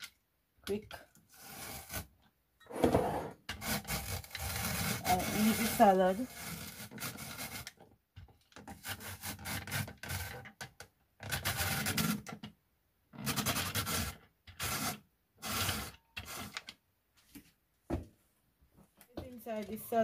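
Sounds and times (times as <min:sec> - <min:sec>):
rotary grater rasping carrots: 0:03.6 - 0:07.8.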